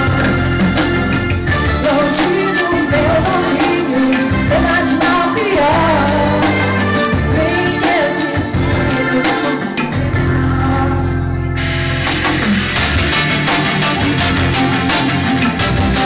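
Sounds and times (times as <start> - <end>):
electric guitar: 0.0 - 16.0
keyboard: 0.0 - 16.0
woman singing: 1.5 - 11.3.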